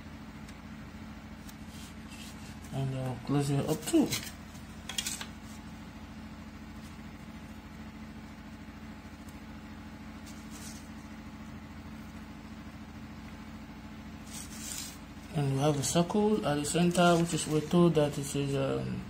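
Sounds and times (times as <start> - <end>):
low machine hum: 0.0 - 19.0
short scrape: 14.2 - 15.0.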